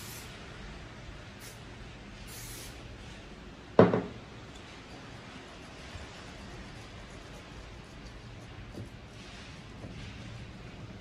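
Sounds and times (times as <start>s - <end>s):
aerosol spray hissing: 0.0s - 0.4s, 1.4s - 1.6s, 2.2s - 2.8s
spray can knocking on table: 3.8s - 4.2s.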